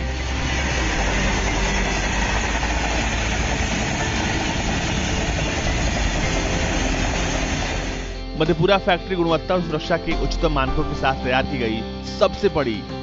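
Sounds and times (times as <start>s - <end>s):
train wheels rumbling on rails: 0.0s - 8.1s.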